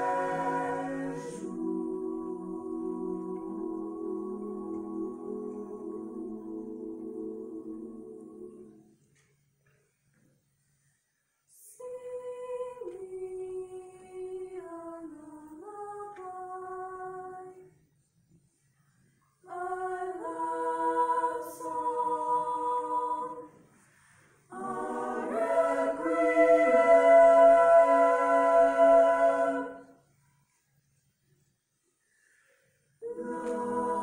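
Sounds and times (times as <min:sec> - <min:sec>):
choir singing: 0:00.0 - 0:09.0, 0:11.6 - 0:17.7, 0:19.4 - 0:30.1, 0:33.0 - 0:34.0.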